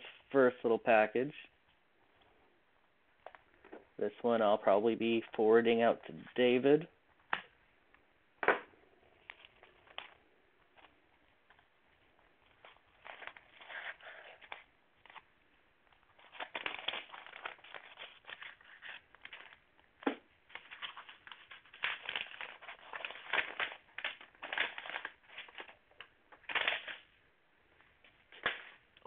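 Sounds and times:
plastic and paper crinkling: 9.2s - 27.1s.

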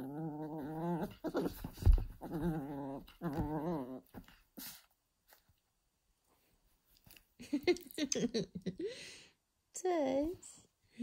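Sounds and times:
puppy growling: 0.0s - 4.3s
thump: 1.5s - 2.2s.

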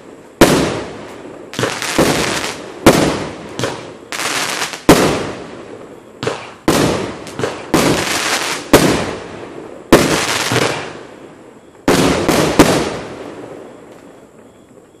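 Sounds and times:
firework bursts with crackling: 0.0s - 5.5s, 6.2s - 11.1s, 11.8s - 13.2s.

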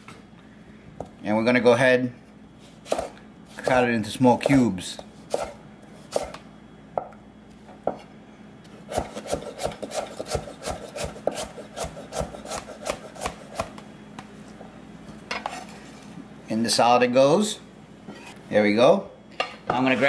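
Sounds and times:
knife chopping on wooden board: 2.9s - 3.2s, 8.9s - 13.8s.

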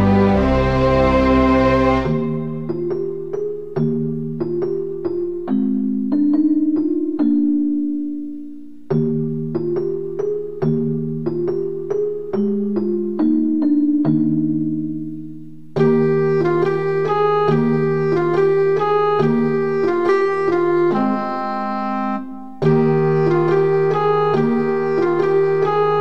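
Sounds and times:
keyboard melody: 0.0s - 26.0s.

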